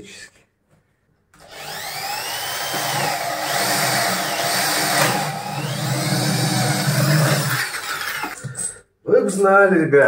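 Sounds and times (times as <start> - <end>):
electric drill boring into wood: 1.4 - 8.4.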